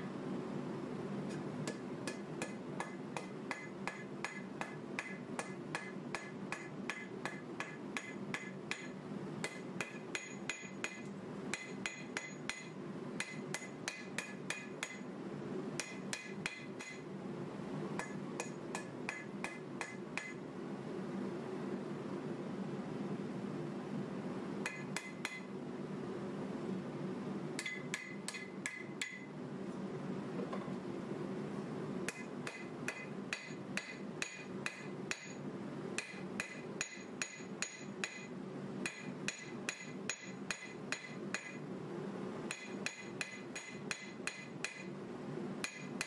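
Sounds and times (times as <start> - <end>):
steady low hum: 0.0 - 46.0
hammer striking on anvil: 1.7 - 15.1, 15.8 - 17.0, 18.0 - 20.4, 24.6 - 25.5, 27.6 - 29.3, 32.1 - 35.4, 36.0 - 41.6, 42.5 - 44.9, 45.6 - 46.0.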